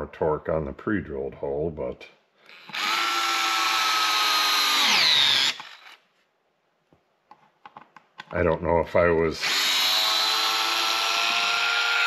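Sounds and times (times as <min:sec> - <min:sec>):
cordless screwdriver motor whining: 0:02.5 - 0:06.0, 0:09.4 - 0:12.0.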